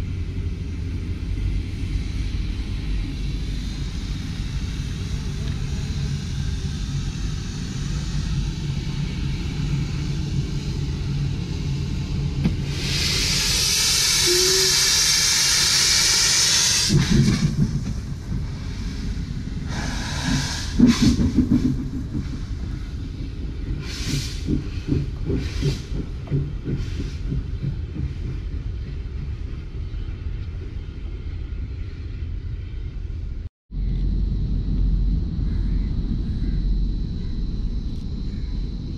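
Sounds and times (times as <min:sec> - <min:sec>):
locomotive exhaust chuffs: 0:00.0 - 0:29.7
steam locomotive hissing steam: 0:01.3 - 0:28.2
bursts of steam hiss: 0:12.6 - 0:21.7.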